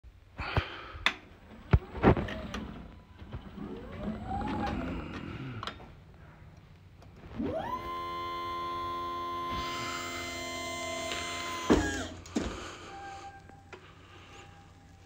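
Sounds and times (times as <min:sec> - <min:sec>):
electric drive motor whining: 0:01.6 - 0:05.7, 0:07.2 - 0:15.0.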